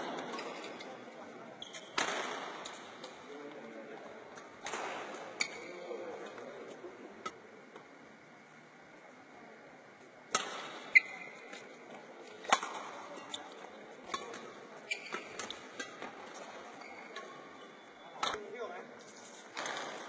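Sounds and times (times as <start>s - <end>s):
rackets striking shuttlecock: 10.3s - 11.7s, 12.5s - 13.4s.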